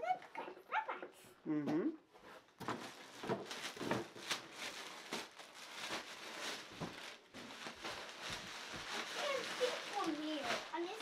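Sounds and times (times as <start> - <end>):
plastic bag crinkling: 2.7 - 11.0.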